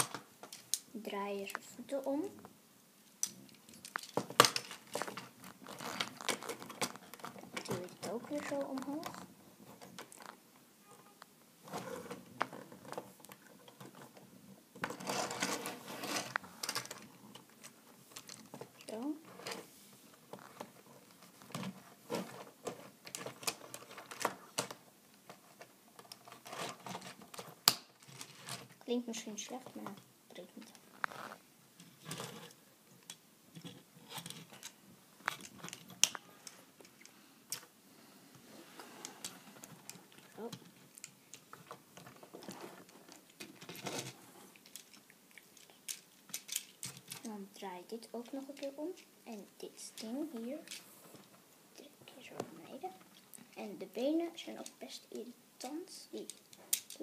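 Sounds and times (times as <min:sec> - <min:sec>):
plastic toy parts clicking: 0:03.2 - 0:05.1, 0:43.2 - 0:47.3, 0:56.2 - 0:57.0.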